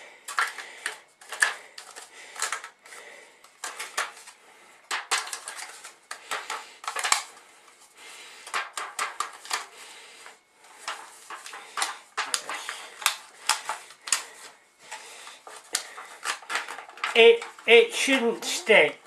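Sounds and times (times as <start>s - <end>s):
aluminium foil crinkling: 3.6s - 7.4s, 10.8s - 18.2s.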